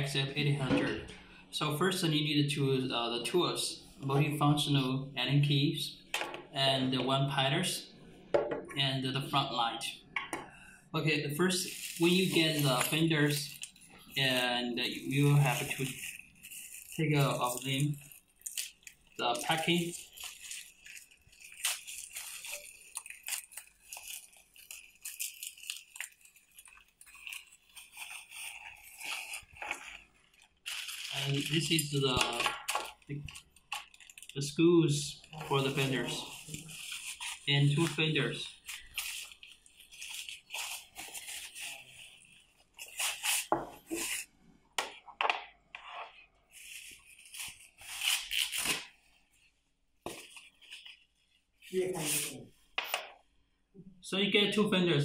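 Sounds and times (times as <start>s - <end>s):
bubble wrap crinkling: 11.3s - 34.4s, 35.1s - 44.3s, 46.1s - 53.0s.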